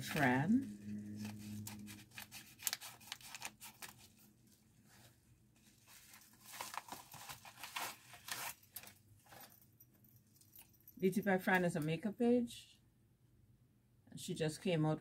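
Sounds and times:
packaging crinkling and rustling: 1.1s - 9.5s.

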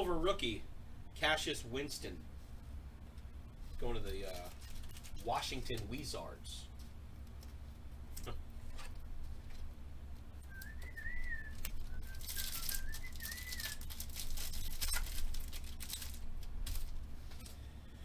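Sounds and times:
person whistling a tune: 10.5s - 13.8s
foil pack tearing and crinkling: 11.0s - 17.5s.

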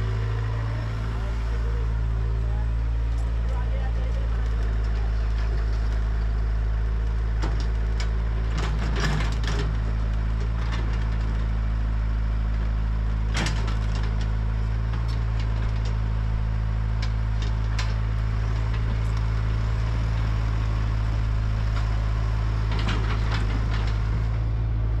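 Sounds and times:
diesel engines idling: 0.0s - 25.0s
sharp cracks and knocks: 13.3s - 16.0s.

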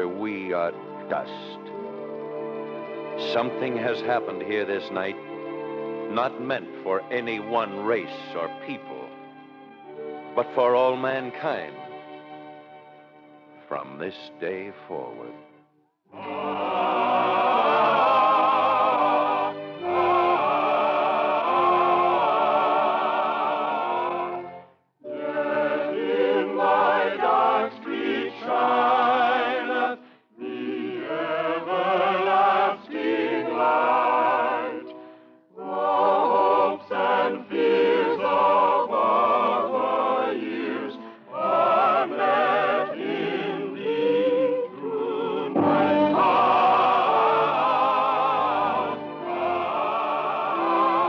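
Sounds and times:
choir singing: 3.2s - 5.2s, 16.1s - 35.0s, 35.6s - 51.0s.

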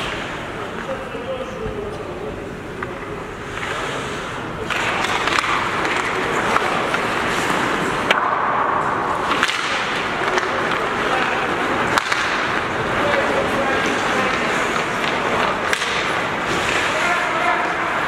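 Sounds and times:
hockey sticks clacking: 2.7s - 18.0s
skate blades scraping on ice: 3.4s - 8.1s, 9.2s - 18.0s.

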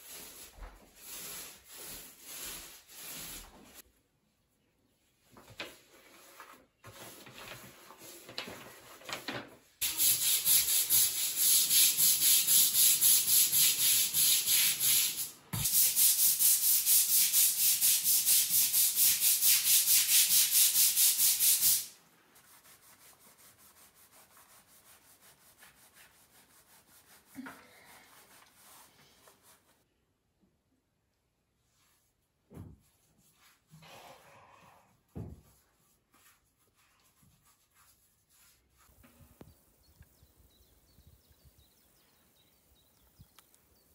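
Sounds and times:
brush scrubbing wet tiled floor: 0.0s - 3.9s, 9.8s - 29.8s, 35.0s - 39.1s.

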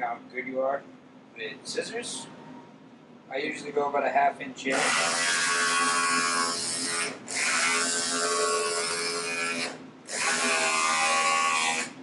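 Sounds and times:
electric scissors motor buzzing: 4.7s - 12.0s.

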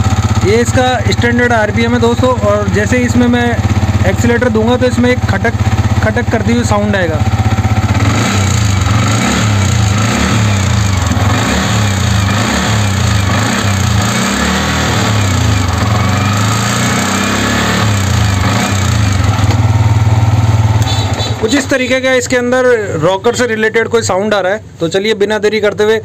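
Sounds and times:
motorcycle engine revving: 0.0s - 22.8s.

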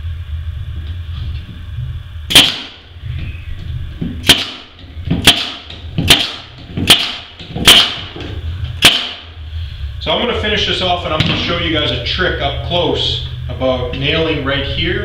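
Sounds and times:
staple gun shots: 2.3s - 2.8s, 4.2s - 4.6s, 5.2s - 8.1s, 8.8s - 9.2s.

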